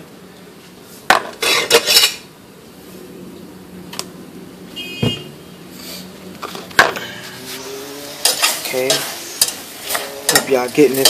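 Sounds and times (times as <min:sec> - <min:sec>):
rustling and scraping: 0:00.6 - 0:02.3, 0:05.7 - 0:11.0
knocks and dull thump: 0:05.0 - 0:05.3.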